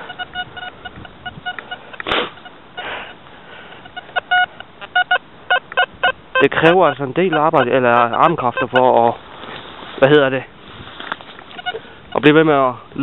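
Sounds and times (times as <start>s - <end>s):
metal detector beeping: 0.0s - 3.2s, 3.8s - 9.2s, 11.5s - 12.4s.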